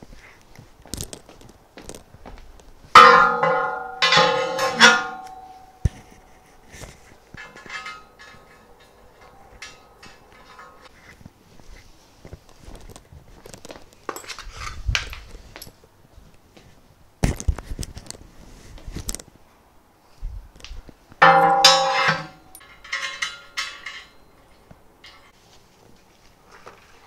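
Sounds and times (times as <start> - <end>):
loud metallic clang: 3.0 - 6.0, 21.2 - 24.5
metal parts clattering: 3.0 - 10.9, 21.2 - 25.4.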